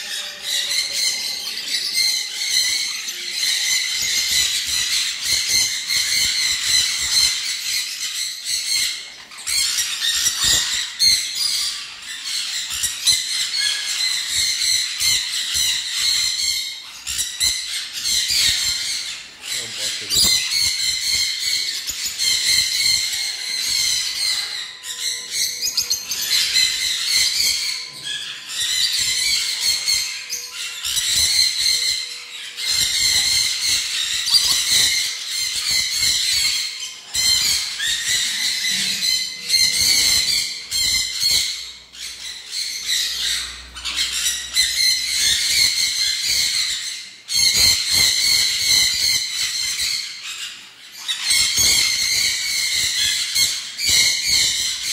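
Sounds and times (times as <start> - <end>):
parrots squawking and screeching: 0.0 - 54.9.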